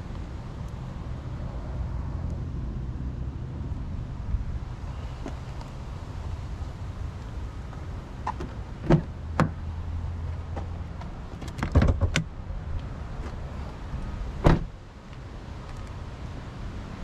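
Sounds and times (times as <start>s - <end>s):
car door closing thump: 14.4s - 14.7s.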